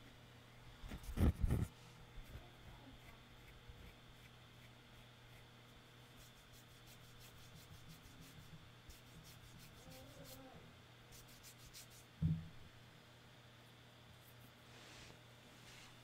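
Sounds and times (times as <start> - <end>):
hand scratching near microphone: 0.9 - 1.8
low thump: 12.2 - 12.5.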